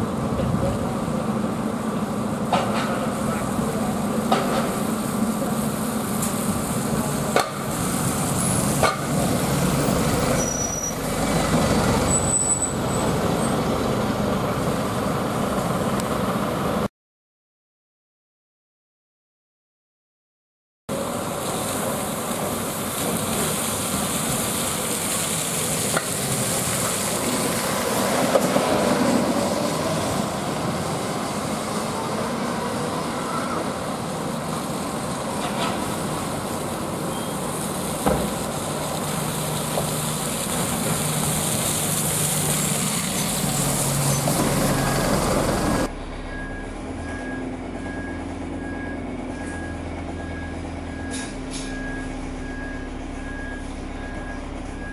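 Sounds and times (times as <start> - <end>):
diesel bus engines: 0.0 - 16.9, 20.9 - 54.9
tyres on wet road: 0.0 - 16.9, 20.9 - 54.9
rain hiss: 3.0 - 13.4, 20.9 - 45.8.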